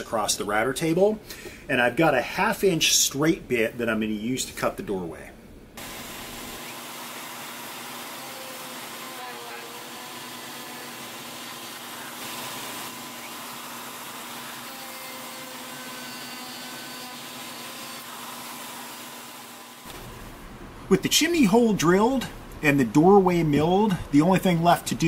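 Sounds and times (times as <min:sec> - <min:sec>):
router bit milling wood: 0:05.8 - 0:19.9.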